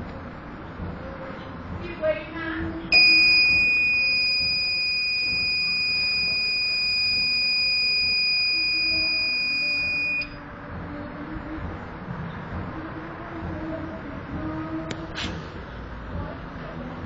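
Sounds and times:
alarm buzzer beeping: 3.0s - 10.4s.

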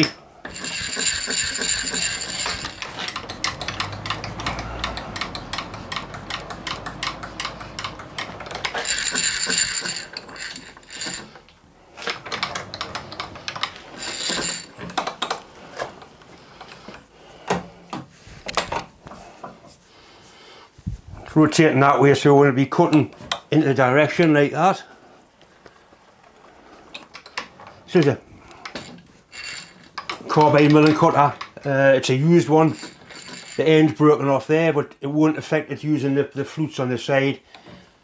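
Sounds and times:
metallic clicking and clattering: 0.0s - 17.1s, 27.0s - 31.8s, 32.4s - 33.8s.

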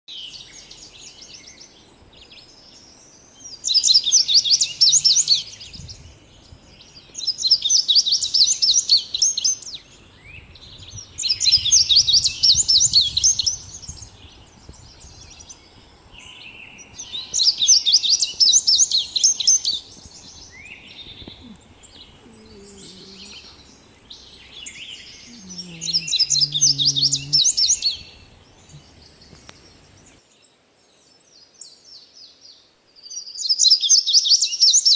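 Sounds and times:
soft bird chirps: 0.1s - 34.9s
songbird singing high notes: 3.5s - 14.2s, 16.2s - 30.2s.

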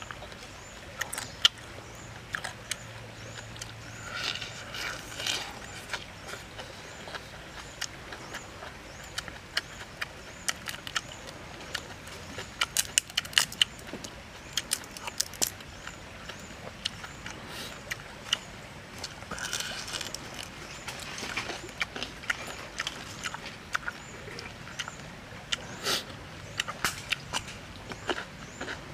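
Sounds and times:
chewing: 0.0s - 28.9s
shrimp shell crackling: 3.8s - 6.5s, 12.4s - 15.7s, 19.0s - 23.3s.

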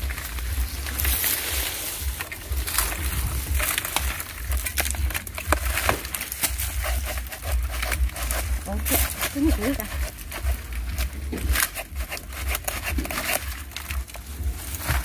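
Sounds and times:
wind rumbling on microphone: 0.0s - 6.2s
palm fronds rustling and crackling: 0.0s - 15.0s.

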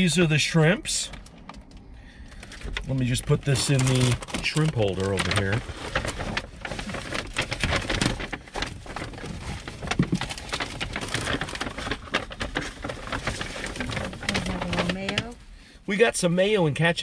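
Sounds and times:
paper bag rustling and crinkling: 2.3s - 15.4s.

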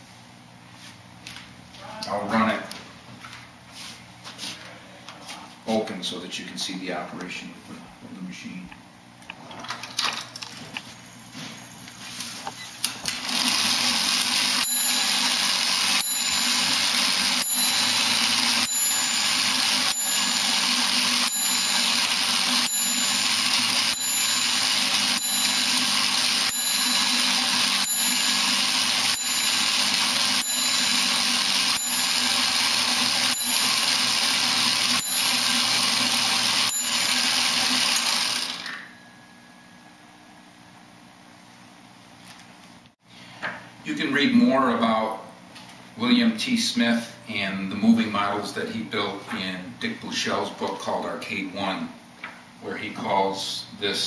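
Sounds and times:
small motor whirring: 13.0s - 38.9s.

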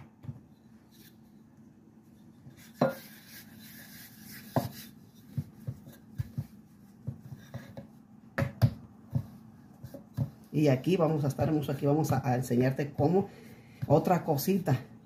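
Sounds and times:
rolling pin rolling dough: 2.0s - 14.6s
scraping rub: 2.5s - 6.4s.

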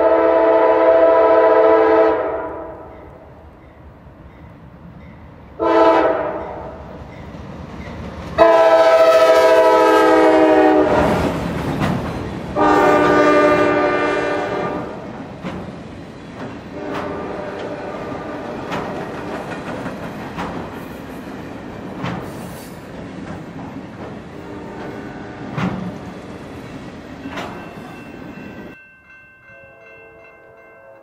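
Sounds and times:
locomotive air horn blasts: 0.0s - 2.9s, 5.6s - 6.8s, 8.4s - 11.2s, 12.6s - 15.0s, 16.8s - 18.4s, 24.4s - 25.5s
train wheels clicking over rail joints: 11.0s - 12.6s, 14.9s - 28.7s.

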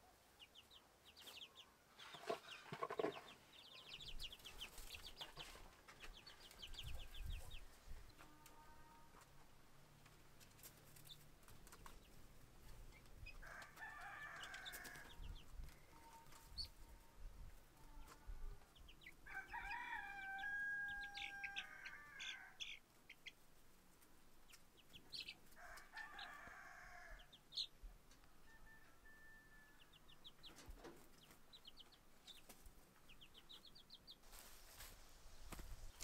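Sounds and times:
poultry chirping: 0.4s - 8.3s, 10.4s - 17.1s, 17.8s - 23.7s, 24.4s - 26.4s, 27.1s - 36.0s
rooster crowing faintly: 19.2s - 22.6s, 25.6s - 27.3s, 28.2s - 30.0s.

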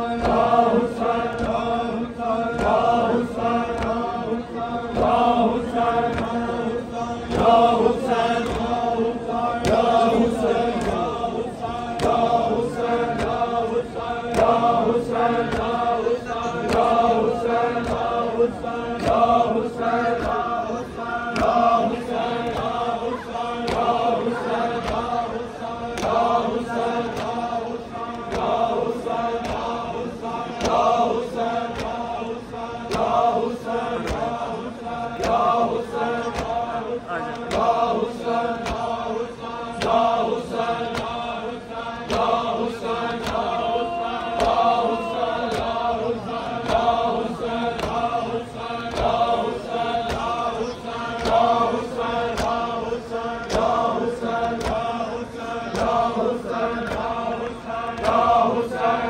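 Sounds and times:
crowd of men chanting: 0.0s - 59.0s.

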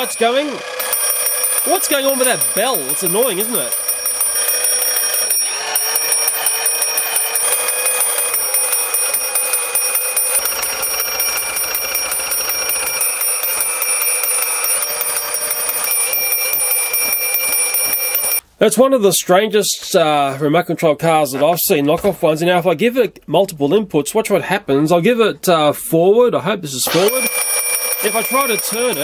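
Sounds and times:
toy car bell ringing: 0.0s - 18.4s, 26.9s - 29.0s.

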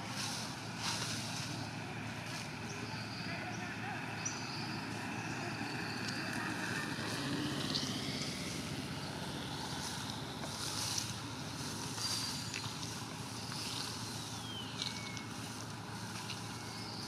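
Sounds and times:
high chirps: 9.7s - 17.0s.

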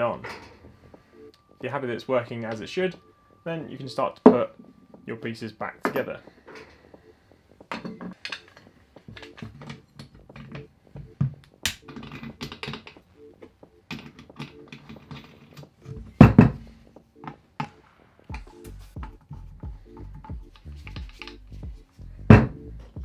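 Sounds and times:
metal parts clicking and knocking: 7.7s - 10.6s, 20.0s - 21.4s.

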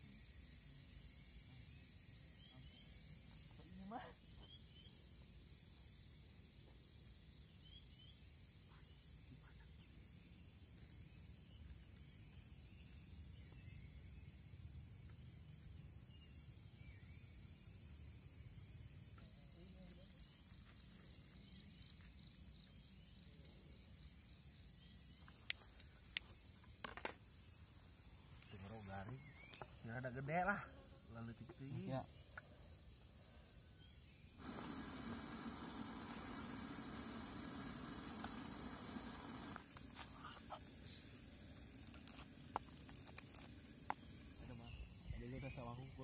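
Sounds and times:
crickets trilling: 0.0s - 46.0s.

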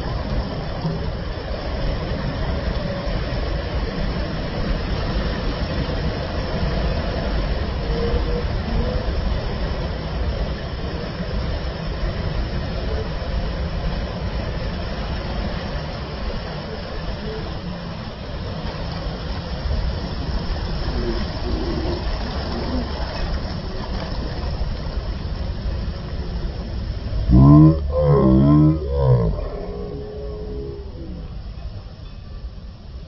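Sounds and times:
ocean surf breaking: 0.0s - 31.8s
faint voices: 27.2s - 32.2s.

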